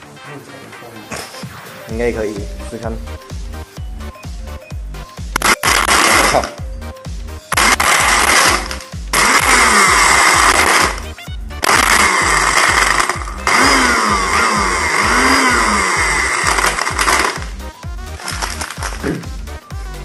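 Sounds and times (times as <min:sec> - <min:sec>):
background music with steady beat: 0:00.0 - 0:20.0
blender crushing ice: 0:05.4 - 0:06.6, 0:07.5 - 0:19.3.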